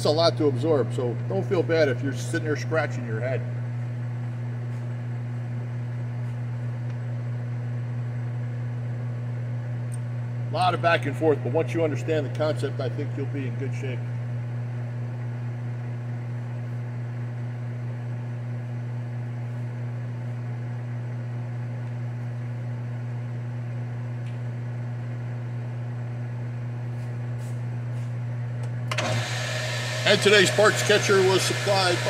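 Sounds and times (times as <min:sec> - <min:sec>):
lathe motor humming: 0:28.9 - 0:32.0.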